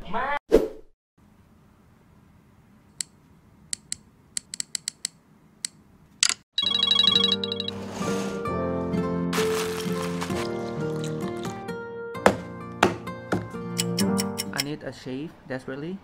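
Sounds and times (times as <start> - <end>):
phone alarm ringing: 6.6 - 7.8.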